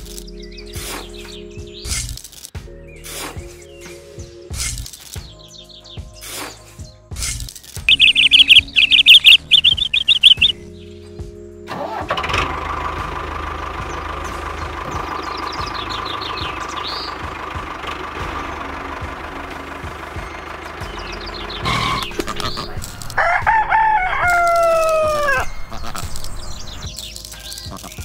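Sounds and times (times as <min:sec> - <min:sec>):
bird chirping: 0:07.9 - 0:11.0, 0:13.9 - 0:17.3, 0:20.8 - 0:22.9, 0:24.6 - 0:28.0
model tractor engine droning: 0:11.7 - 0:23.2.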